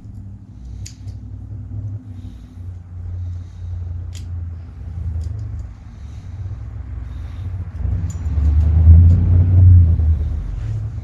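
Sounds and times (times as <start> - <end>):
small metallic clicks: 0.0 - 1.3, 4.1 - 4.4, 5.0 - 5.8, 8.0 - 9.2
low steady rumble: 0.0 - 11.0.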